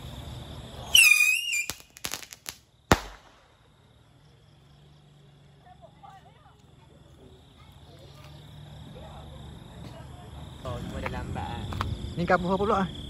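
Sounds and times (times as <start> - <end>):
firecracker whistle: 0.8 - 3.4
loud firecracker bang: 0.9 - 3.6
firecracker cracks: 0.9 - 3.7.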